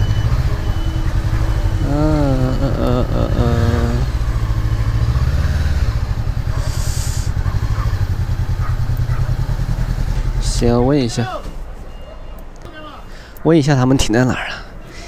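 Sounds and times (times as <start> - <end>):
motorcycle engine running: 0.0 - 10.8.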